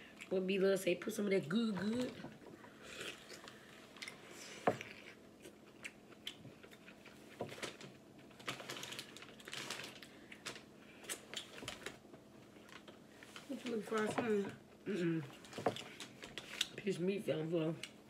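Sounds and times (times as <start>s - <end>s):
chewing and lip smacks: 4.8s - 7.2s.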